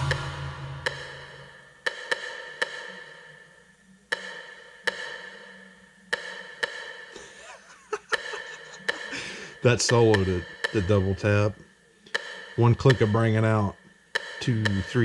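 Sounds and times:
synthesizer percussion hits: 0.0 - 3.0, 8.0 - 15.0.

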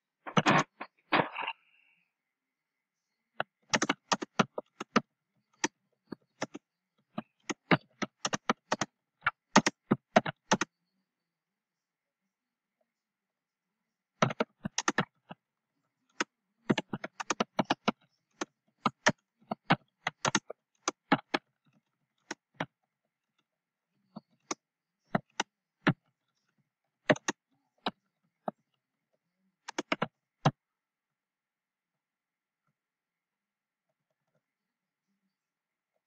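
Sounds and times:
typing on computer keyboard: 3.4 - 6.6, 7.2 - 10.7, 14.2 - 15.3, 16.1 - 21.5, 27.0 - 27.9, 29.6 - 30.6.

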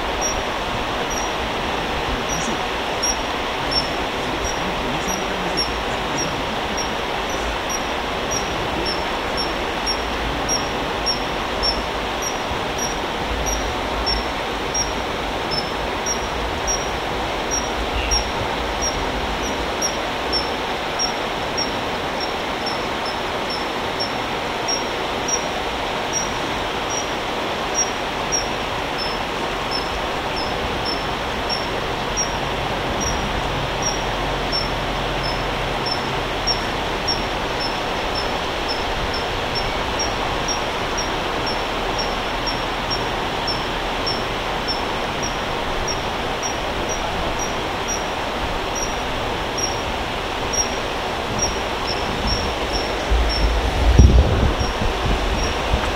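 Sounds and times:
stream rushing: 0.0 - 55.9
bird high-pitched peeps: 0.2 - 1.4, 2.2 - 25.4, 27.8 - 32.4, 33.0 - 48.1.

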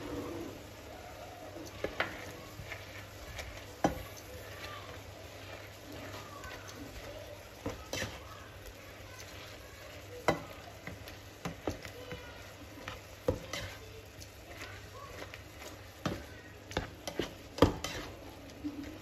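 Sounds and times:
food sizzling: 0.0 - 19.0
spatula knocking frying pan: 1.8 - 5.1, 9.2 - 18.1.

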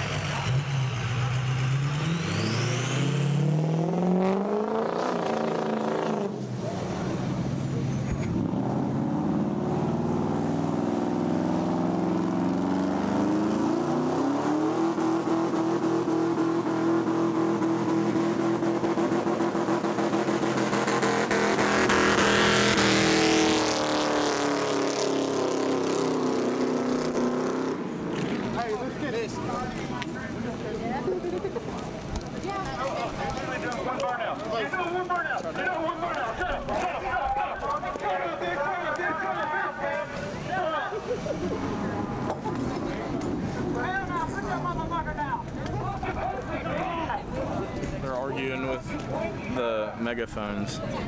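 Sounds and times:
truck engine revving: 0.0 - 29.0.

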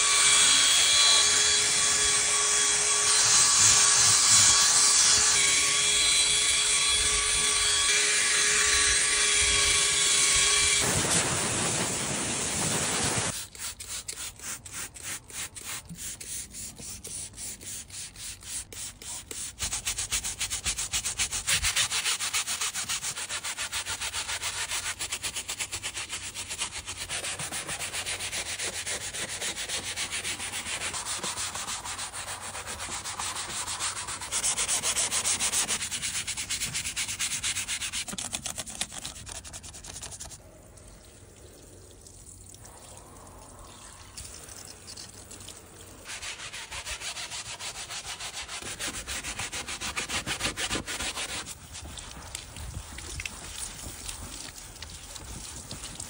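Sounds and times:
water spraying: 10.8 - 19.5, 49.0 - 56.0
brush scrubbing fabric: 11.5 - 40.4, 46.0 - 56.0.

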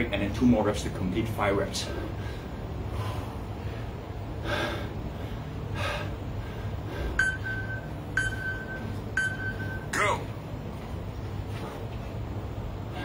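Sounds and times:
man breathing heavily: 1.8 - 8.2, 10.8 - 13.0
high electronic timer beep: 7.2 - 10.0.

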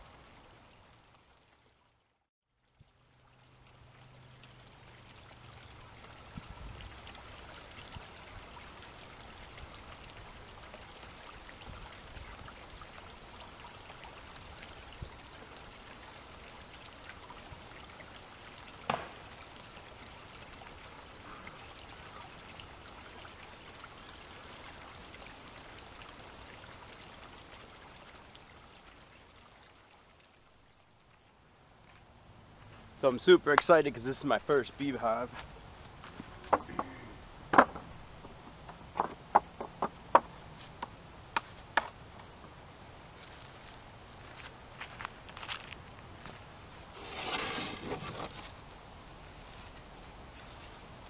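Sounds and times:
steady outdoor hiss: 0.0 - 51.0.

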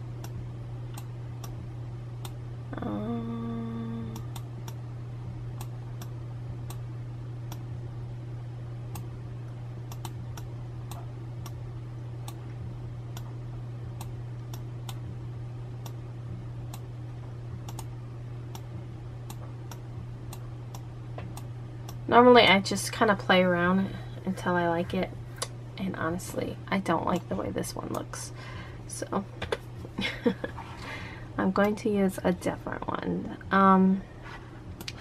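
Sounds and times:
steady low hum: 0.0 - 35.0
computer mouse clicking: 9.9 - 11.6, 17.6 - 17.9.

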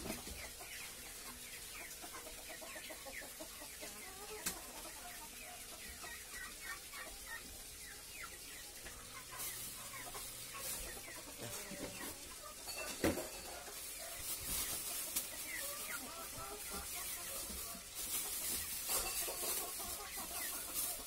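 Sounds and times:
chickens clucking: 0.0 - 21.0
plastic bags crinkling: 9.2 - 21.0.

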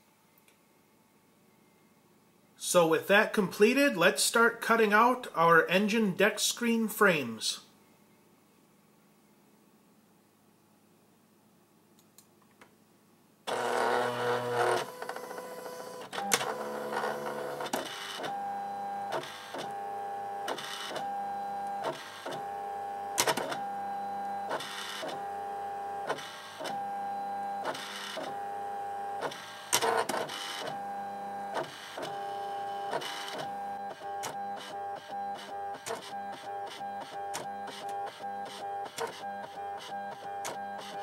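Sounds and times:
cutting machine motors whining: 13.5 - 41.0.

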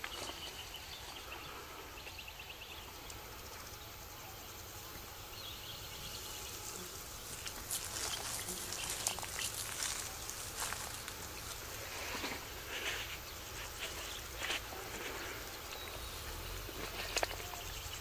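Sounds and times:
dry crackling rustle: 6.5 - 18.0.

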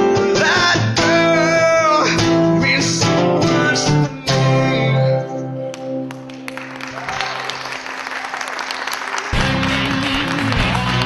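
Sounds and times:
man singing: 0.0 - 5.5
acoustic guitars: 0.0 - 6.6, 9.3 - 11.0.

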